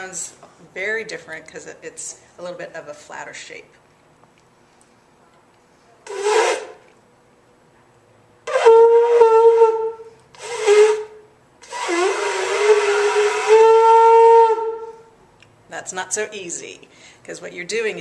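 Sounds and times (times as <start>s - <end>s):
shofar blasts: 6.1s - 6.9s, 8.4s - 15.1s.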